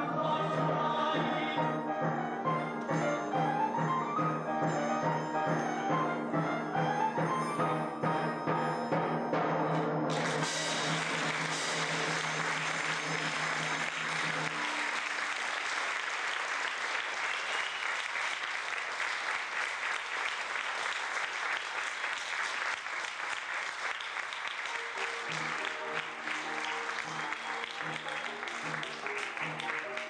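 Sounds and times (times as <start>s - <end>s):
music playing: 0.0s - 15.8s, 24.6s - 30.0s
audience applauding: 10.1s - 30.0s.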